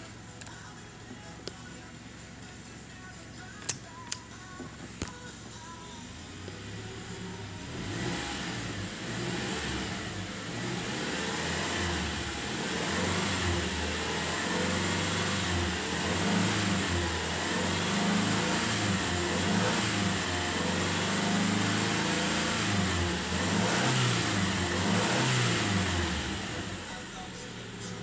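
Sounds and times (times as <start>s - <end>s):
car engine revving and running: 4.5s - 28.0s.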